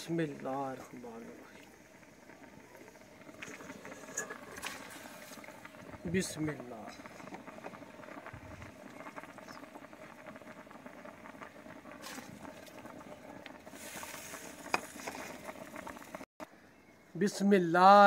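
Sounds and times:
broth bubbling in pot: 0.0 - 17.0
rice pattering into pot: 2.3 - 16.2.

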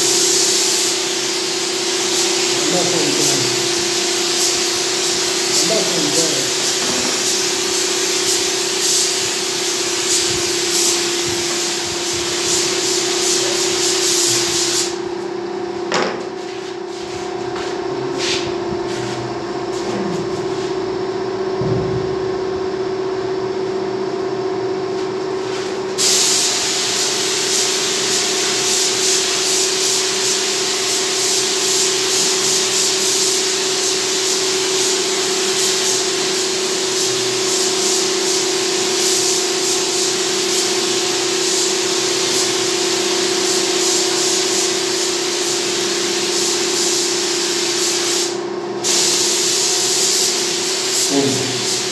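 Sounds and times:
paint spray gun hissing: 0.0 - 15.1, 25.4 - 51.9
steady hum: 2.1 - 26.0.

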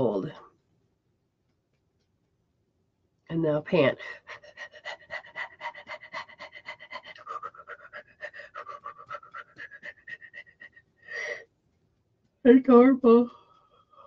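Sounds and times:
woman panting rapidly: 4.0 - 11.5.

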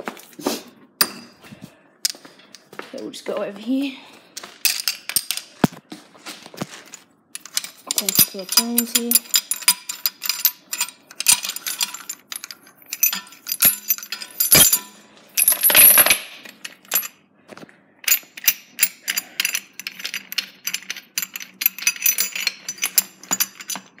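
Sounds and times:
chain and shackles clinking: 4.4 - 5.7, 6.6 - 17.2, 18.0 - 24.0.

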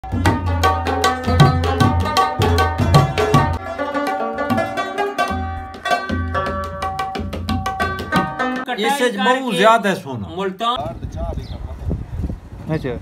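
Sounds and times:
plucked string melody: 0.0 - 9.0.

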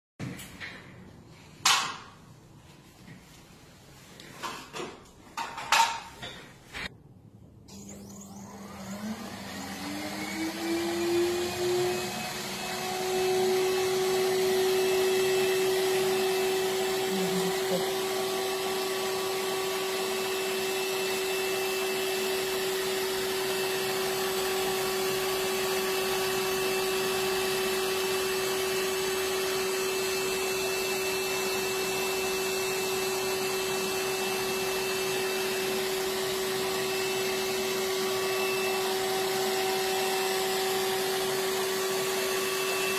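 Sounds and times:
machine whine over hiss: 7.7 - 16.2.

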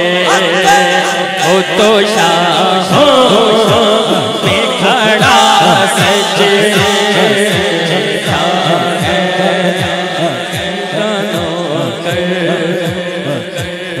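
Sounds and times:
man singing into a microphone: 0.0 - 14.0
low thumping beat: 1.4 - 14.0.

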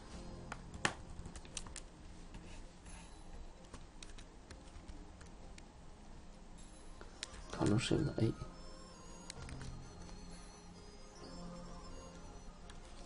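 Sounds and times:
computer keyboard keys clicking: 0.8 - 1.9, 3.6 - 5.7, 9.2 - 10.2.

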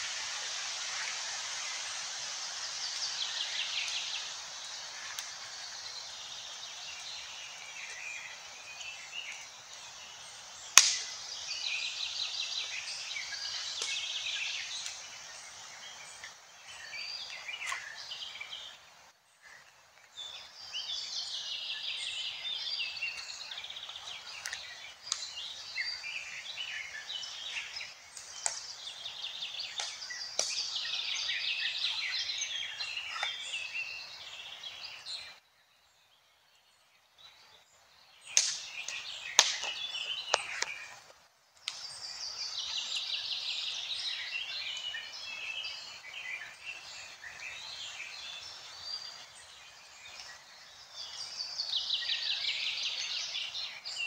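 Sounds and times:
steady hiss: 0.0 - 35.4, 37.8 - 54.0
birds chirping and trilling: 0.2 - 54.0.

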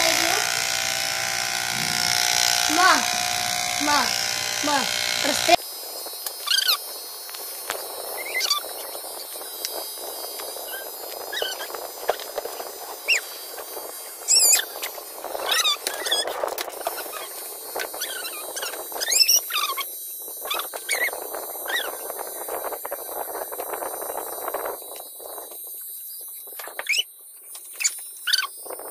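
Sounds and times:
high squeaky animal calls: 6.4 - 6.8, 8.2 - 9.3, 10.6 - 12.2, 13.0 - 13.4, 14.3 - 17.4, 18.0 - 22.1, 27.8 - 28.6.

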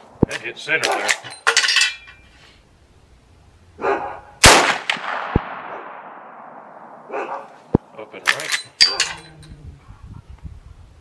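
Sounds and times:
rifle shot with echo: 4.4 - 7.1.

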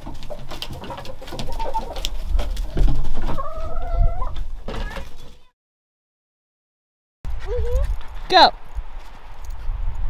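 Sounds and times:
hen clucking: 0.0 - 5.4.

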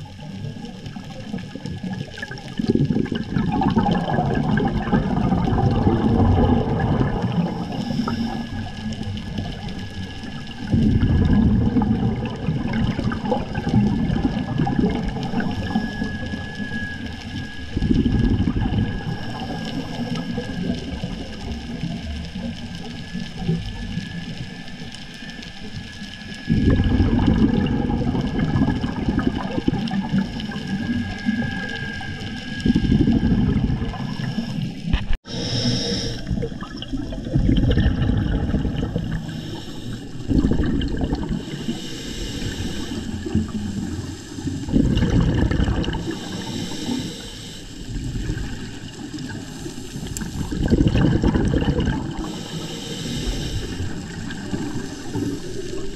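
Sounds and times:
exhaled bubbles rushing underwater: 0.0 - 55.9
regulator inhalations: 34.1 - 36.5, 39.2 - 40.2, 41.4 - 44.6, 46.0 - 48.0, 52.2 - 54.2.

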